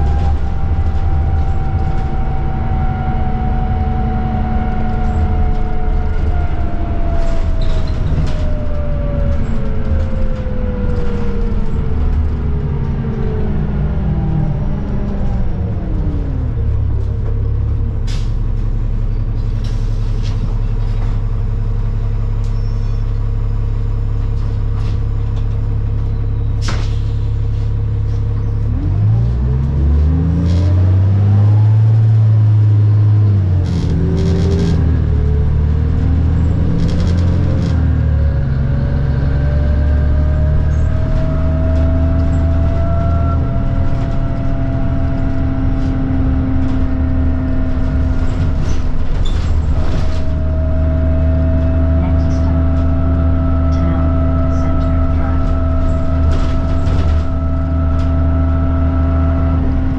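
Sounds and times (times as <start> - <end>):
rising whine: 0.0 - 17.5, 28.7 - 59.9
bus engine idling and revving: 0.0 - 59.9
rattles and clicks: 4.7 - 18.7, 33.4 - 38.5, 39.2 - 59.0.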